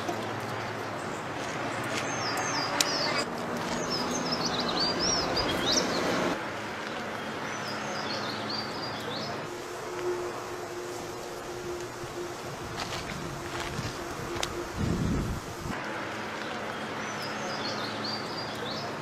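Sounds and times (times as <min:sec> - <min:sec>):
steady outdoor noise: 0:00.0 - 0:19.0
low hum: 0:09.5 - 0:15.8.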